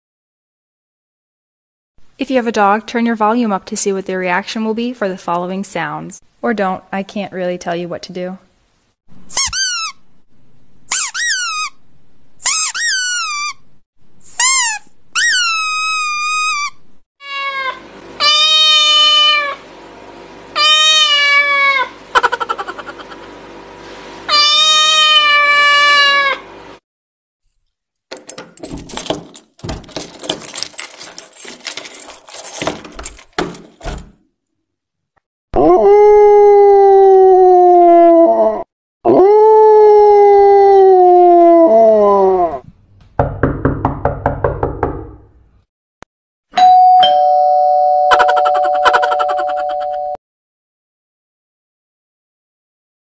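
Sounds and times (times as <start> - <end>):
loud pitched call: 15.4 - 19.6, 20.6 - 23.3, 24.3 - 26.4
scattered clicks and rustling: 28.1 - 34.0
two-tone doorbell chime: 46.6 - 50.2.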